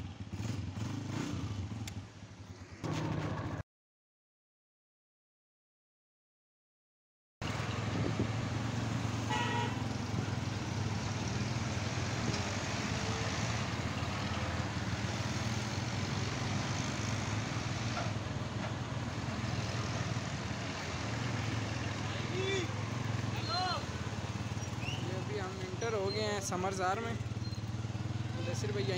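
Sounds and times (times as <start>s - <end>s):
road traffic: 0.0s - 3.6s, 7.4s - 28.9s
horn honk: 9.2s - 10.0s
tractor engine running: 13.8s - 25.9s.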